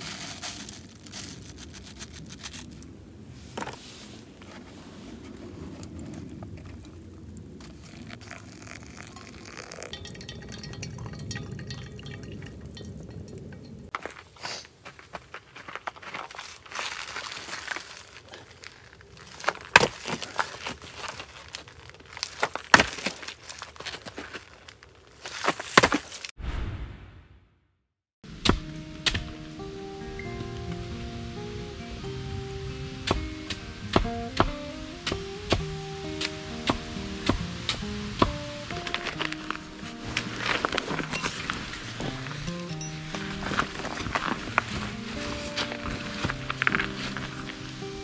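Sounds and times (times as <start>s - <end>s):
gear being handled: 0.0s - 2.8s
paper filter crinkling: 0.0s - 10.0s, 14.5s - 26.3s, 38.8s - 48.0s
dry leaves rustling: 0.0s - 26.3s, 28.3s - 48.0s
ground coffee pouring into filter: 7.7s - 12.9s.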